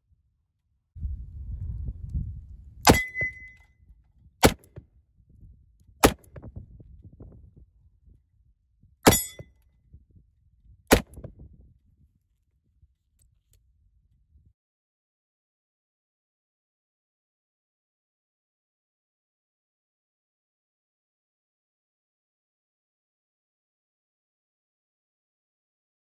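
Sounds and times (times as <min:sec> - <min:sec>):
bullet striking steel plate: 0:02.9 - 0:03.6, 0:09.1 - 0:09.5, 0:10.9 - 0:11.1
high ring from steel: 0:02.9 - 0:03.6, 0:09.1 - 0:09.4.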